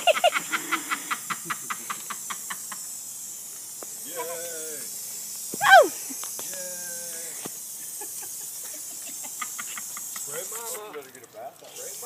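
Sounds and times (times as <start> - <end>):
high vocal cry: 5.6 - 6.0.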